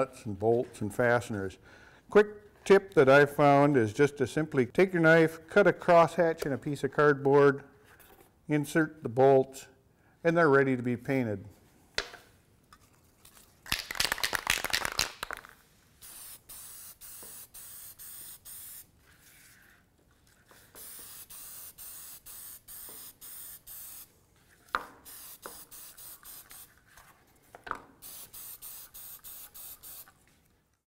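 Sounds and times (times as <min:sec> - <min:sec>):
spray can ball rattling: 0:13.3 - 0:18.9, 0:20.6 - 0:24.1, 0:25.0 - 0:26.8, 0:28.0 - 0:30.2
spray paint hissing spurts: 0:13.8 - 0:19.7, 0:20.6 - 0:24.2, 0:25.0 - 0:26.8, 0:28.0 - 0:30.2.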